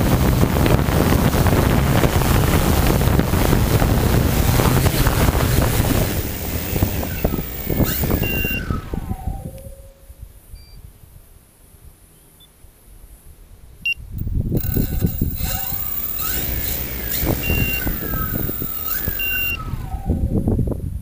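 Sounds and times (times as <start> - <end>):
wind buffeting microphone: 0.0 - 10.3, 14.1 - 21.0
drone motors whining: 0.6 - 9.4, 14.2 - 20.2
short high beeps: 7.1 - 8.6, 14.2 - 19.6.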